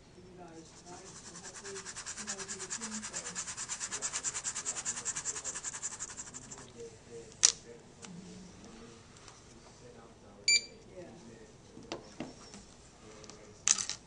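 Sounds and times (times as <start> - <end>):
pen scribbling on paper: 0.7 - 6.7.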